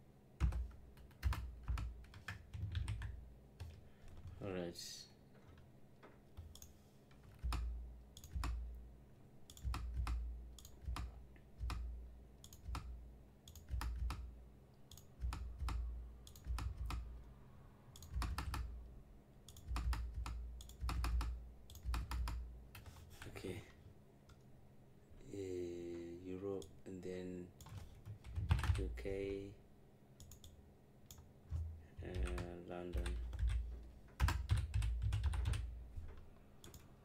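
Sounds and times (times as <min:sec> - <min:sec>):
typing on a computer keyboard: 0:00.4 - 0:04.4, 0:06.4 - 0:08.6, 0:09.5 - 0:12.9, 0:13.5 - 0:14.3, 0:14.9 - 0:17.1, 0:18.0 - 0:18.7, 0:19.4 - 0:23.0, 0:27.6 - 0:29.0, 0:30.2 - 0:35.7.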